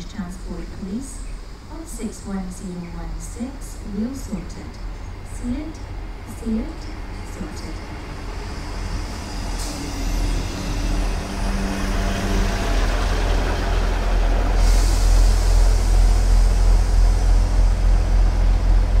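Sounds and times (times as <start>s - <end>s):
diesel train passing rumble: 0.0s - 19.0s
hiss: 14.4s - 18.2s.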